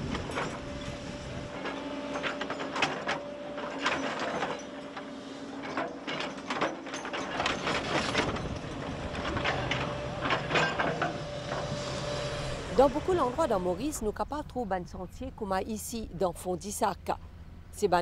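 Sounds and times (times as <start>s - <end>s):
excavator engine humming: 0.0s - 18.0s
bucket clanking and scraping: 5.6s - 11.8s.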